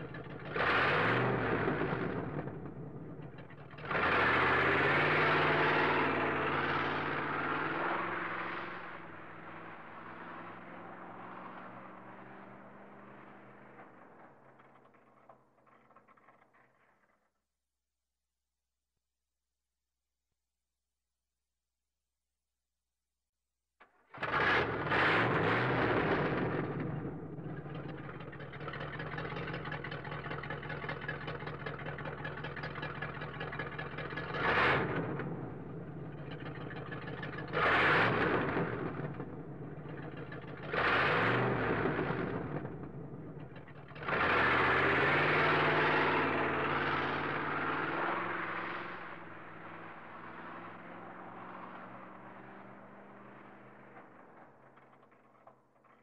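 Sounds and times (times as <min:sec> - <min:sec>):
car engine revving: 0:00.0 - 0:15.0, 0:24.2 - 0:54.9
car engine starting and idling: 0:24.2 - 0:56.0.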